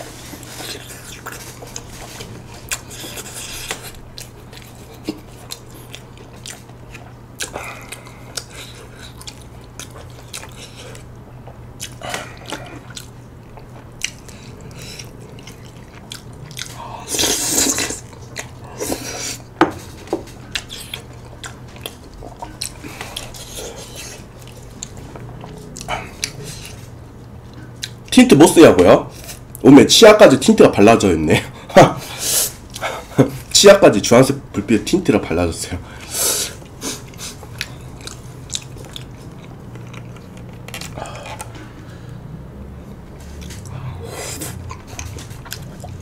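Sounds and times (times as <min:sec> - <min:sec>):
low background hum: 0:00.0 - 0:46.0
wet chewing: 0:00.2 - 0:28.1, 0:36.0 - 0:41.7, 0:43.2 - 0:46.0
slurping: 0:16.6 - 0:18.1.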